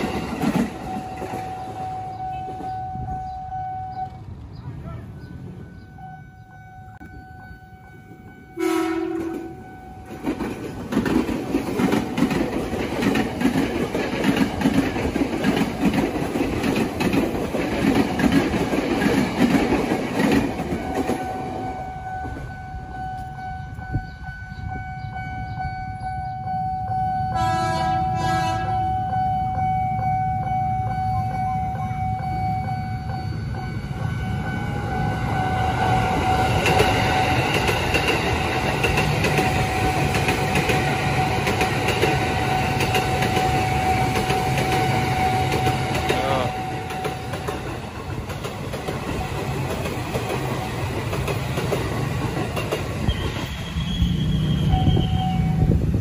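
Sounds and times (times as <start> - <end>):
level crossing warning tone: 0.0 - 4.4, 5.0 - 10.5, 20.5 - 47.8, 54.3 - 55.8
train rumbling and wheel clatter: 0.0 - 56.0
train horn: 5.8 - 10.1, 27.3 - 29.2.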